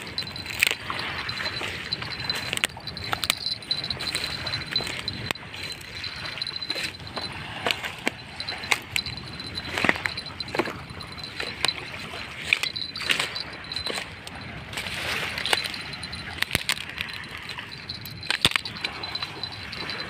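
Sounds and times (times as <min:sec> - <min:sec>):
thin high-pitched whine: 0:00.0 - 0:14.5
footsteps crunching over driftwood: 0:00.0 - 0:17.2.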